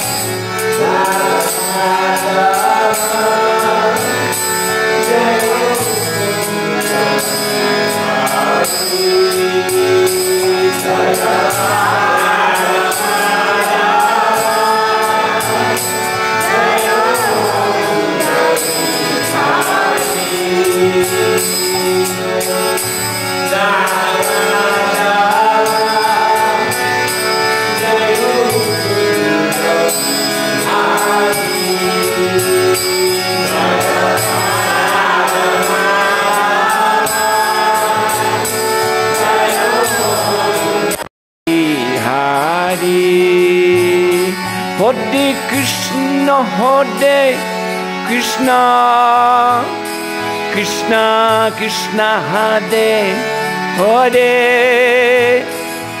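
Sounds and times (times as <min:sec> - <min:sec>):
hand cymbals striking: 0:00.0 - 0:41.0
person singing: 0:00.0 - 0:49.8, 0:50.4 - 0:55.7
harmonium playing: 0:00.0 - 0:56.0.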